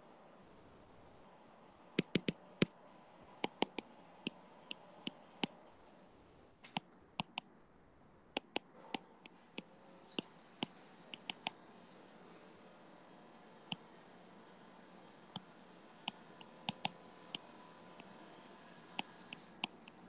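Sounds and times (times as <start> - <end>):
faint background hiss: 0.0 - 20.0
stylus tapping on tablet screen: 2.0 - 2.4, 3.4 - 3.9, 16.1 - 17.0.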